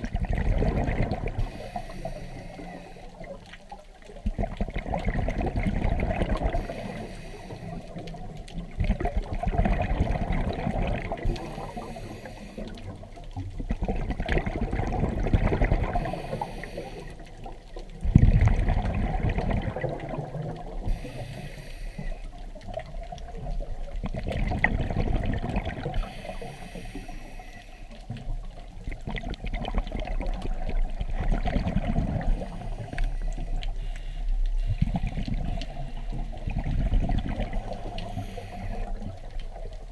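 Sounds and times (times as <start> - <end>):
bubbles burbling underwater: 0.0 - 21.5, 22.4 - 26.3, 28.1 - 33.8, 34.7 - 39.9
regulator inhale hiss: 1.4 - 3.4, 6.5 - 8.2, 11.2 - 13.0, 15.9 - 17.4, 20.8 - 22.4, 25.9 - 28.1, 32.3 - 36.4, 37.7 - 39.3.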